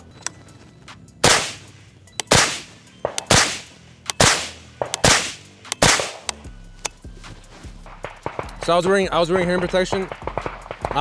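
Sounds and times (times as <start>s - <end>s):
suppressed gunshots: 1.2s - 6.4s, 7.9s - 8.8s, 9.4s - 11.0s.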